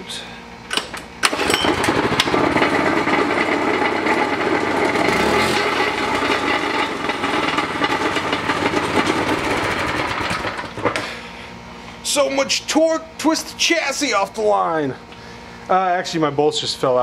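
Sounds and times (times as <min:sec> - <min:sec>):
small engine revving: 0:01.3 - 0:10.8.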